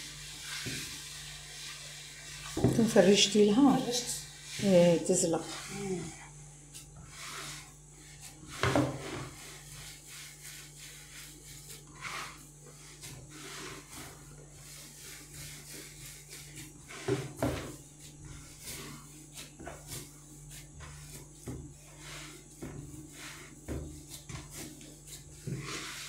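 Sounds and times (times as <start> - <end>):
dough kneaded by hand: 0.0 - 26.0.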